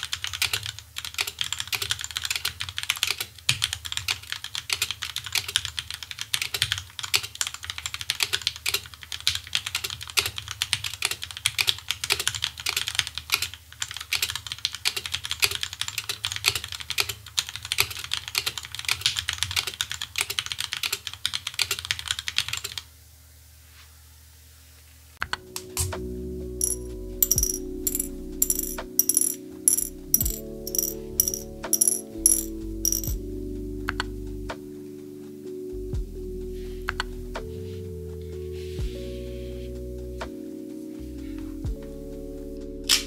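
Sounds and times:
mechanical keyboard typing: 26.6 - 33.2.

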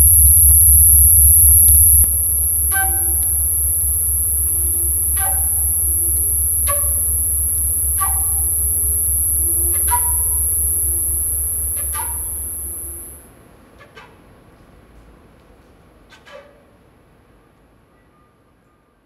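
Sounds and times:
high steady tone: 0.0 - 13.2
low steady drone: 0.0 - 13.2.

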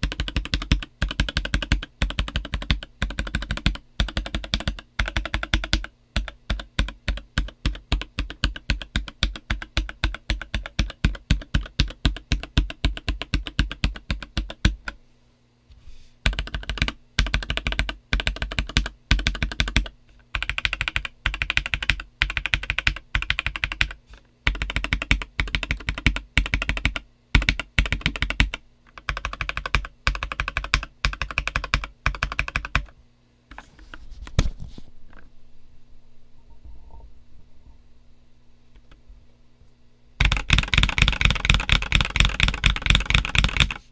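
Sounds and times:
mechanical keyboard typing: 0.0 - 15.0, 16.3 - 32.9, 40.2 - 43.9.

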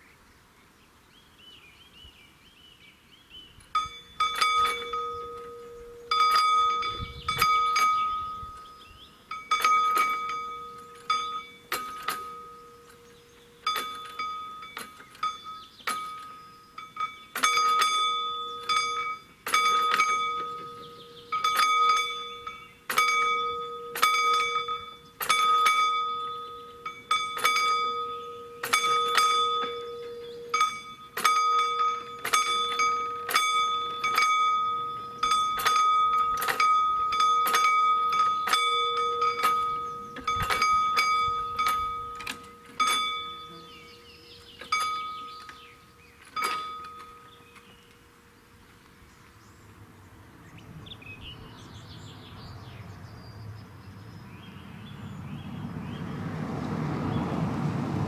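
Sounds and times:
level-crossing warning bell ringing: 3.7 - 48.2.

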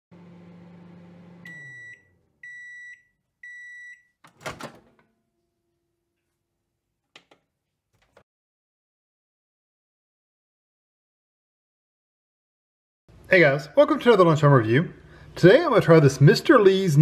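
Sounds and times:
microwave running hum: 0.1 - 3.8
microwave timer beeps: 1.2 - 4.2
door latch clunk: 4.3 - 5.0.

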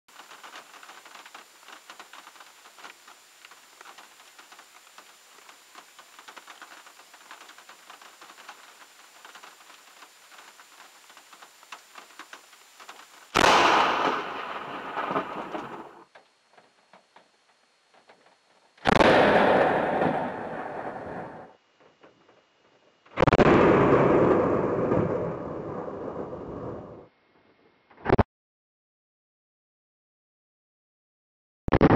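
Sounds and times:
rain pattering on windshield: 0.1 - 13.4
loud thunder crack: 13.4 - 16.0, 18.9 - 21.5, 23.2 - 27.1.

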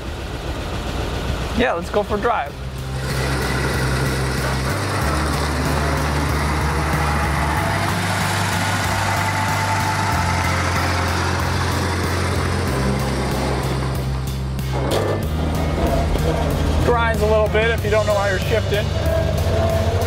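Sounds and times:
truck engine driving away: 0.0 - 20.0
background music: 1.6 - 20.0.

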